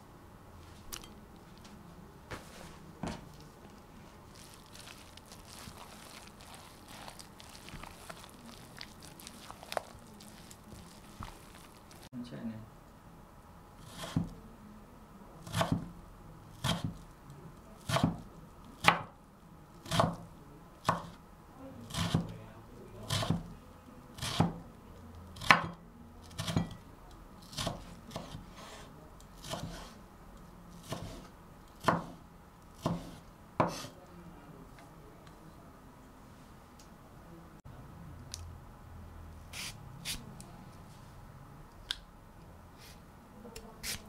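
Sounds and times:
knife slicing vegetable: 13.8s - 14.4s, 15.4s - 15.9s, 16.6s - 17.0s, 17.8s - 18.2s, 19.8s - 20.2s, 20.8s - 21.2s, 21.9s - 22.3s, 23.0s - 23.5s, 24.2s - 24.6s, 25.4s - 26.7s, 27.4s - 30.0s, 30.8s - 32.2s, 32.8s - 34.0s.

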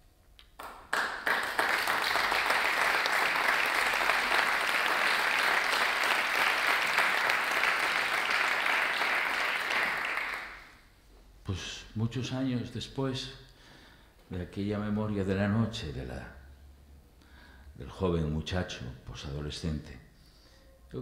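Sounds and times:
audience applauding: 0.6s - 10.8s.

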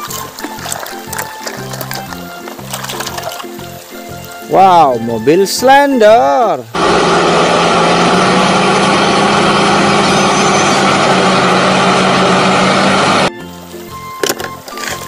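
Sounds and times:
road roller diesel engine: 6.7s - 13.3s.

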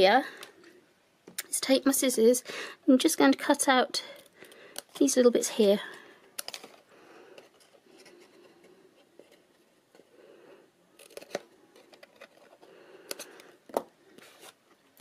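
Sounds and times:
faint paper rustling: 5.7s - 15.0s.

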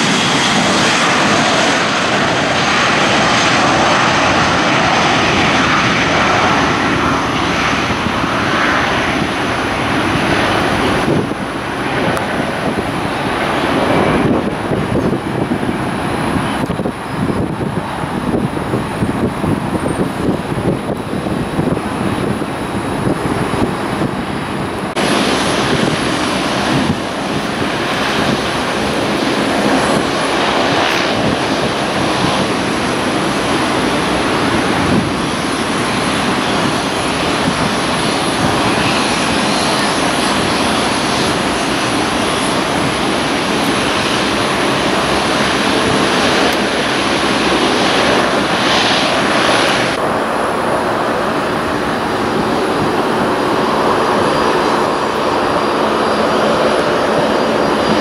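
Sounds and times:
jet engines roaring: 0.0s - 58.0s
thin high whine: 46.5s - 58.0s.

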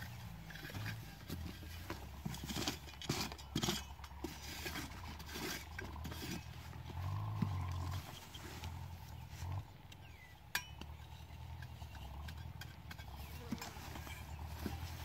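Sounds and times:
hands rustling cardboard and grass: 0.0s - 9.8s, 13.1s - 15.0s
digging tool in soil: 0.0s - 15.0s.

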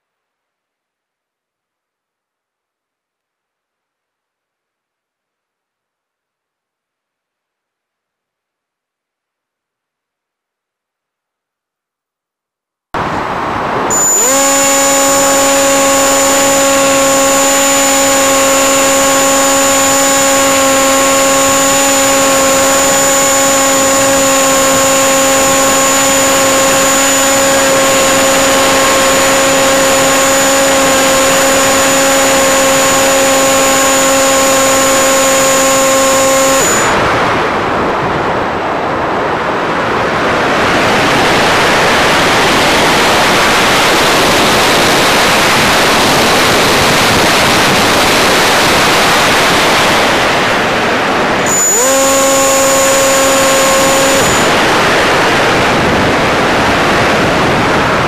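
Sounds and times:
model airplane motor whining: 13.9s - 37.3s, 42.5s - 50.4s, 51.4s - 57.0s.

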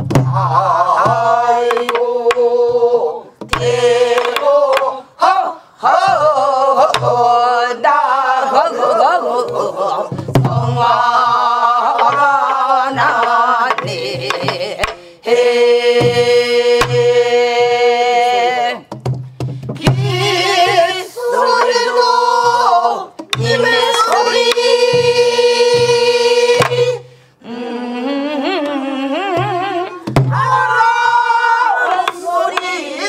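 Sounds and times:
group singing folk song: 0.0s - 33.0s
low drum thumps: 9.5s - 15.0s, 29.4s - 30.7s.

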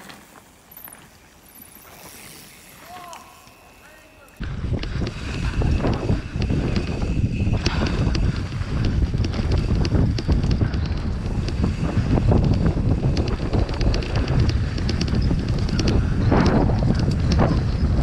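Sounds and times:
bike clicks and rattles: 0.0s - 18.0s
tyres rumbling on dirt: 0.0s - 18.0s
wind buffeting microphone: 4.4s - 18.0s.

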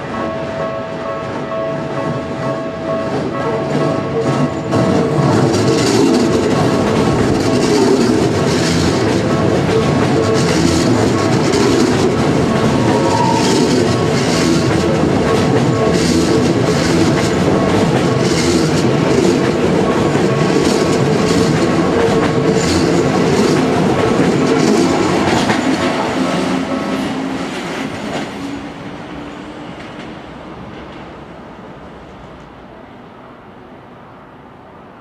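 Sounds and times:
electric train passing: 0.0s - 35.0s
wheels clattering over rail joints: 3.2s - 28.4s.

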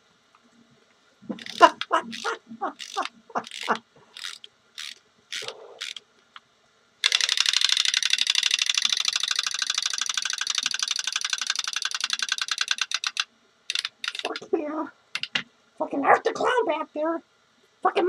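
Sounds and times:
chattering teeth toy clacking: 1.4s - 6.0s, 7.0s - 14.5s.

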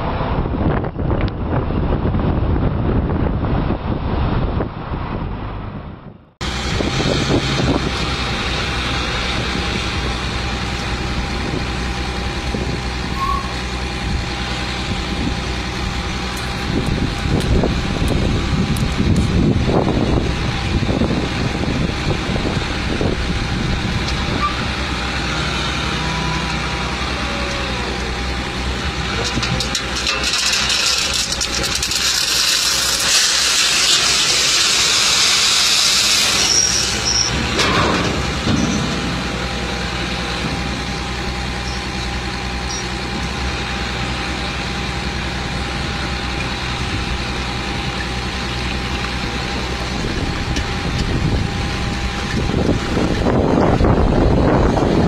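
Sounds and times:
diesel truck engine running: 0.0s - 55.0s
soil sliding out rushing hiss: 28.8s - 37.6s.

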